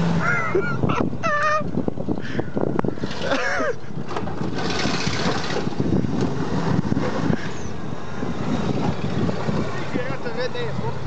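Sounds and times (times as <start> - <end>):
truck engine running under load: 1.8 - 10.1.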